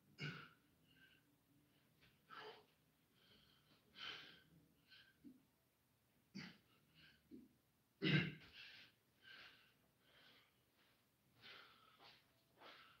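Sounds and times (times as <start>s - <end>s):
man breathing hard: 0.2s - 5.4s, 8.4s - 13.0s.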